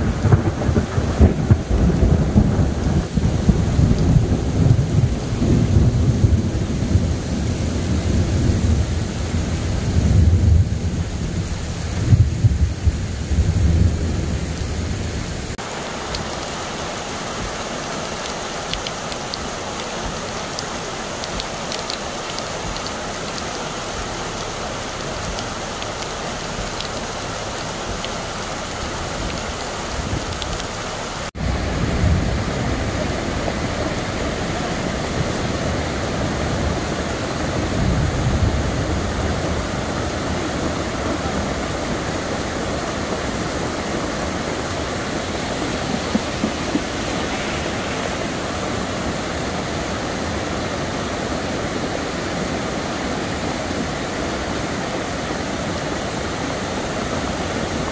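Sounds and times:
flood water rushing over rocks: 0:00.0 - 0:57.9
water pouring over a weir: 0:15.6 - 0:31.5.

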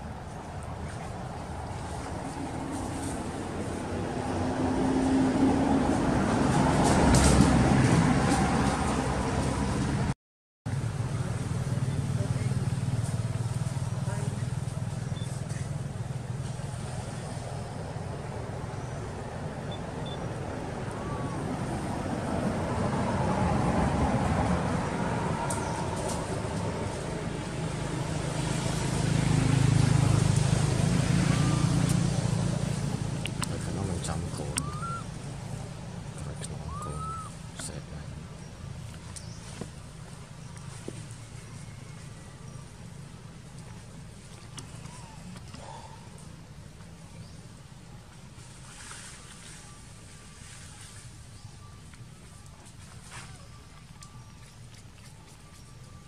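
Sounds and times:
vehicle engine hum: 0:00.0 - 0:56.0
vehicle engine running: 0:10.7 - 0:36.8.

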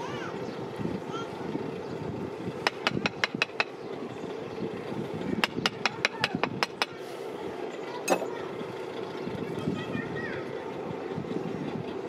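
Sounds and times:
wooden rammer knocking on sand: 0:02.7 - 0:03.7.

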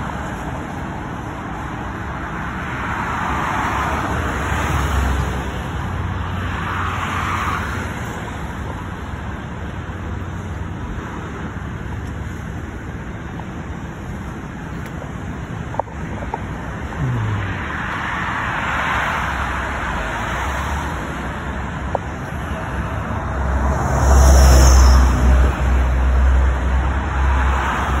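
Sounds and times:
freeway traffic passing: 0:00.0 - 0:28.0
vehicle rumbling past close: 0:15.2 - 0:28.0.

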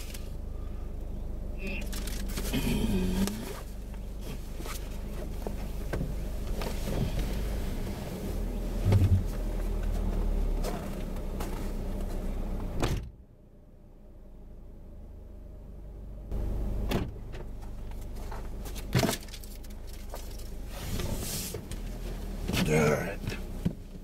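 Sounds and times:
car engine humming: 0:00.0 - 0:24.0
car door thump: 0:12.8 - 0:13.2.

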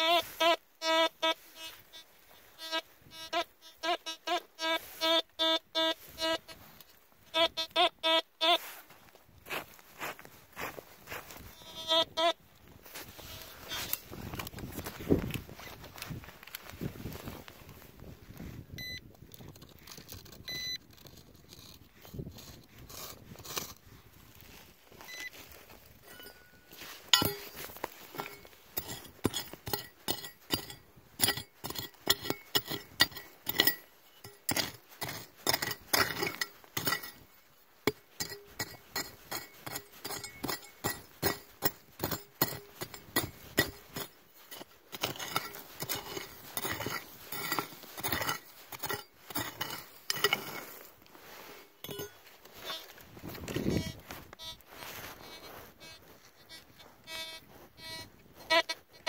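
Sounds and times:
digging tool chopping stony soil: 0:27.0 - 0:50.8.

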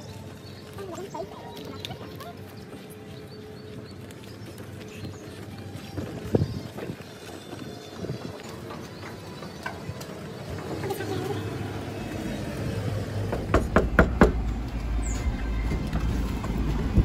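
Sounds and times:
wind rumble on microphone: 0:05.7 - 0:17.0
knocks on a door: 0:13.3 - 0:14.6.

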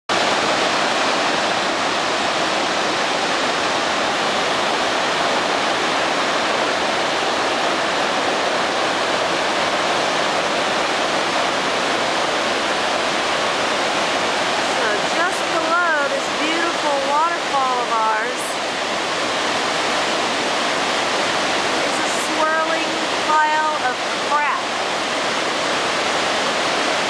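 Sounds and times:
water rushing over spillway: 0:00.1 - 0:27.0.

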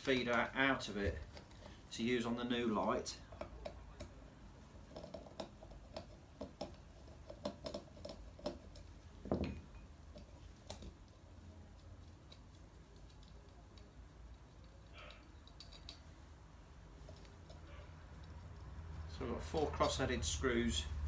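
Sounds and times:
screwdriver and parts clicking: 0:11.8 - 0:16.2.

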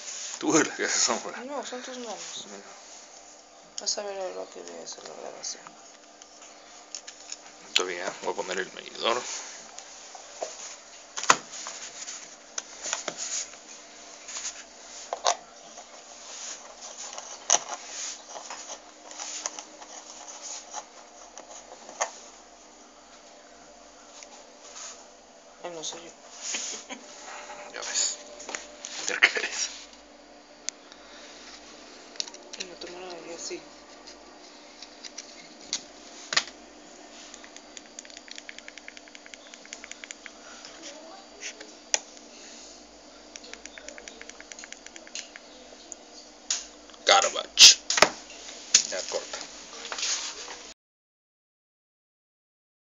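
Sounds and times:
sharp clicks: 0:37.4 - 0:40.4, 0:43.3 - 0:45.5.

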